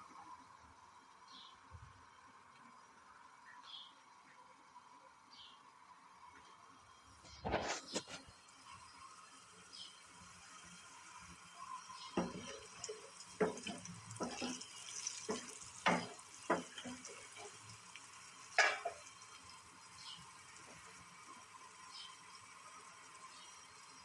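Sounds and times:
garlic sizzling in oil: 0:06.9 - 0:24.0
wooden spoon scraping a saucepan: 0:13.4 - 0:17.0.

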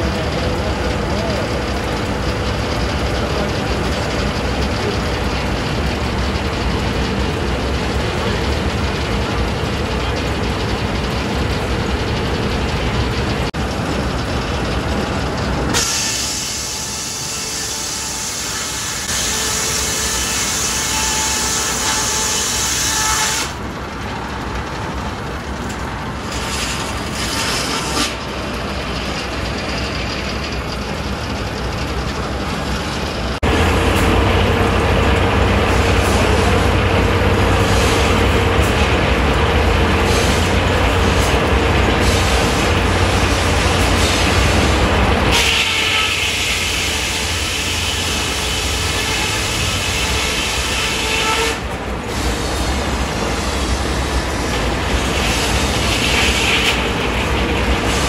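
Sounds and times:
sawmill running: 0:00.0 - 0:58.0
saw blade whining through wood: 0:15.7 - 0:23.6, 0:26.2 - 0:30.7, 0:42.0 - 0:51.7.

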